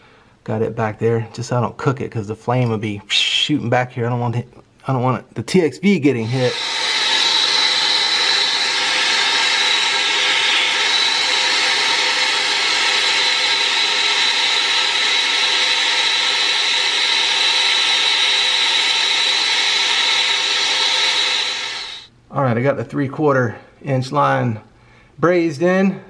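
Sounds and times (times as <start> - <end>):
brazing torch hissing: 6.2 - 22.1.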